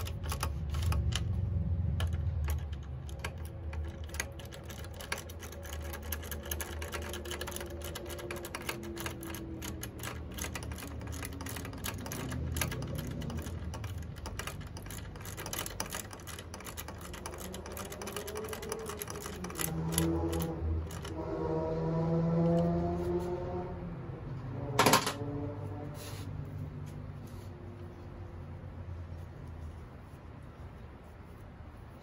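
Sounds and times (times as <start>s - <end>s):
socket ratchet clicking: 0.0s - 21.2s.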